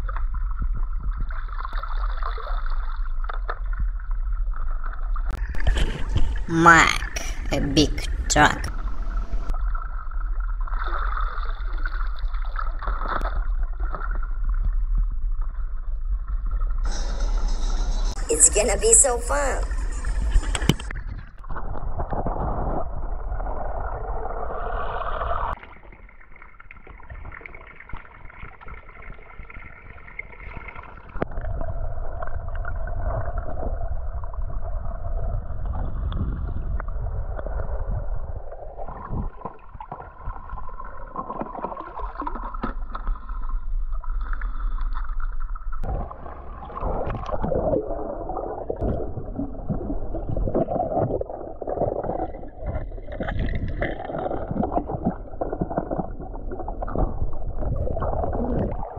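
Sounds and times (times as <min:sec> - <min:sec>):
muffled water gurgling and sloshing: 0:00.0 - 0:58.9
steady low rumble: 0:05.3 - 0:10.2, 0:15.1 - 0:20.9.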